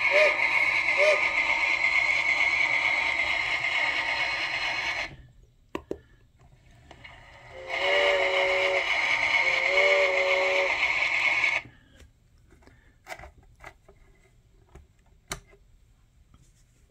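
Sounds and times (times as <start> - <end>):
steam whistle blasts: 0.0 - 1.8, 7.4 - 11.6
steam hissing: 0.0 - 5.2, 7.0 - 11.6.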